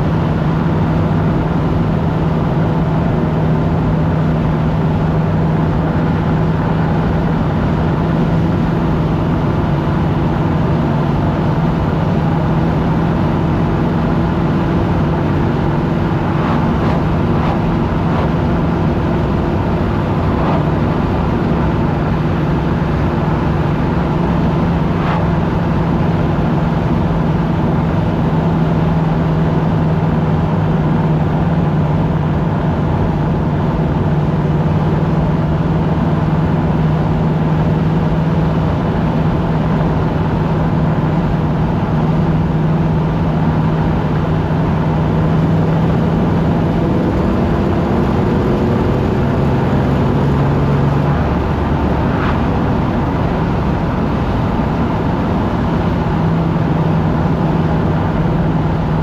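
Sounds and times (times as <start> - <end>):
car engine drone: 0.0 - 59.0
tyre and wind noise: 13.9 - 26.5.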